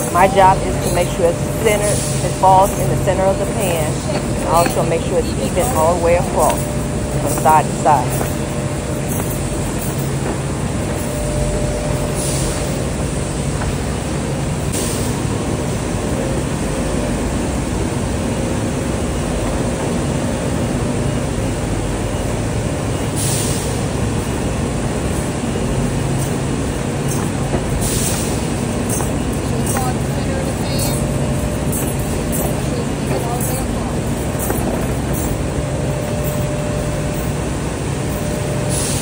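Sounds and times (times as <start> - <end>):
low hum: 0.0 - 15.4
industrial machinery din: 0.0 - 39.0.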